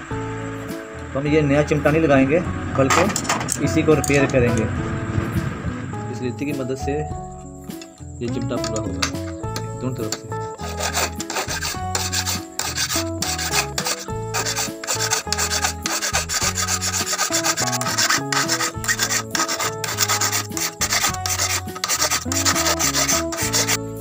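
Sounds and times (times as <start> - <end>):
hand file rasping on metal: 10.1 - 24.0.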